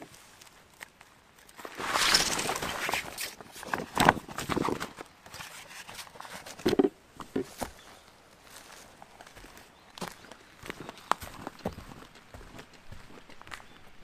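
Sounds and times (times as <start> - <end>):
footsteps on leaves: 1.5 - 6.5, 7.5 - 13.7
ground sheet rustling: 1.6 - 6.6.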